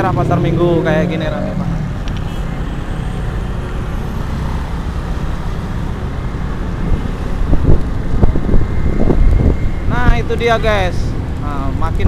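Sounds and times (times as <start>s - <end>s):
motorcycle engine and road rumble: 0.0s - 12.0s
wind buffeting microphone: 4.8s - 12.0s.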